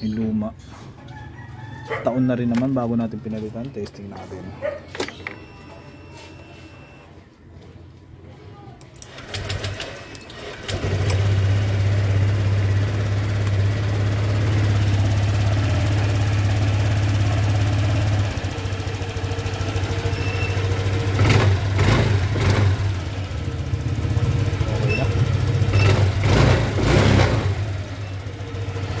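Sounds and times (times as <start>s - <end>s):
scooter engine starting and idling: 9.0s - 29.0s.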